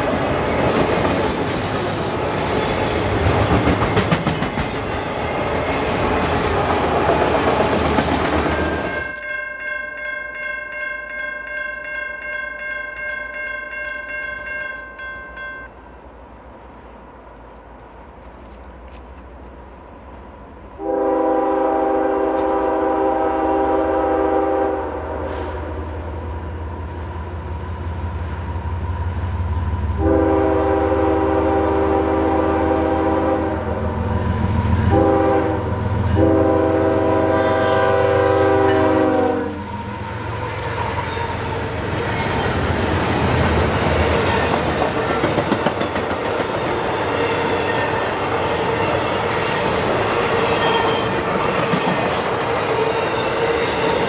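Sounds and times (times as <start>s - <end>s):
train cars rushing past: 0.0s - 10.8s, 12.5s - 54.0s
wheel and rail noise: 0.0s - 31.6s, 33.1s - 54.0s
locomotive air horn blasts: 20.8s - 25.4s, 30.0s - 33.9s, 34.8s - 39.9s.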